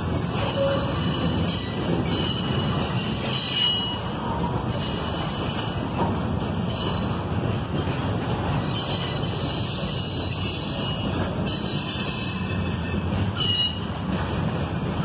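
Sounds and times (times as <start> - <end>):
train wheels rumbling on track: 0.0 - 15.0
high wheel squeal: 0.3 - 5.8, 8.6 - 14.0.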